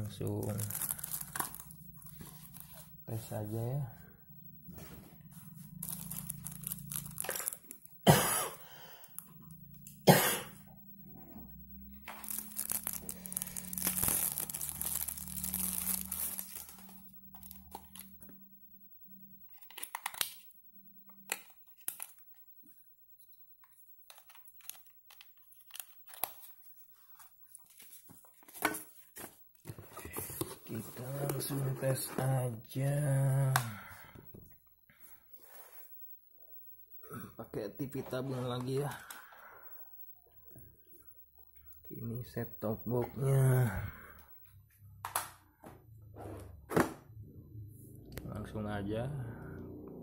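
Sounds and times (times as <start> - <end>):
packaging crinkling: 0.2 - 3.0, 5.6 - 7.9, 12.0 - 18.2, 24.1 - 31.6
plastic and cardboard rustling: 24.1 - 32.5.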